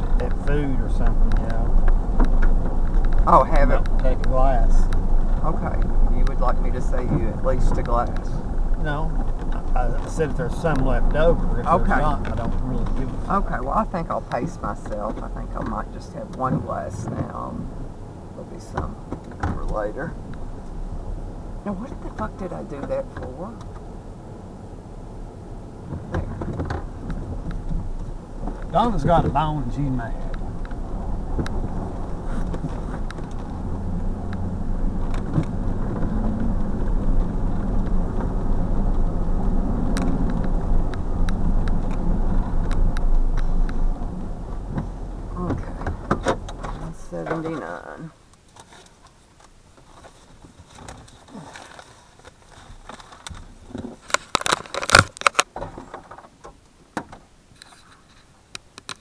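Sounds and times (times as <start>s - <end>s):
light clicks and rattles: 0.0s - 17.4s, 39.9s - 59.0s
car engine rumble: 0.0s - 59.0s.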